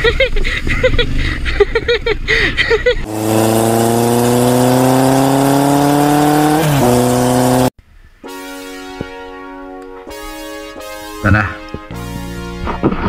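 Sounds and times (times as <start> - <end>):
motorcycle engine revving: 3.0 - 7.8.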